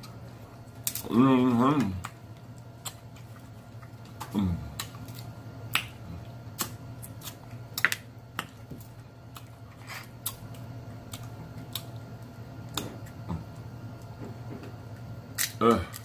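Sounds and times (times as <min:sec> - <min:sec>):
steady low hum: 0:00.0 - 0:16.0
crab shell clicking and snapping: 0:00.8 - 0:01.1, 0:04.0 - 0:08.6, 0:15.3 - 0:16.0.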